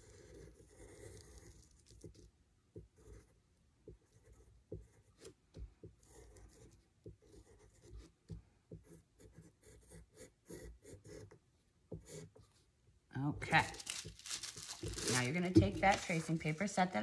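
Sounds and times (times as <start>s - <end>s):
pencil scratching on paper: 0.0s - 12.6s.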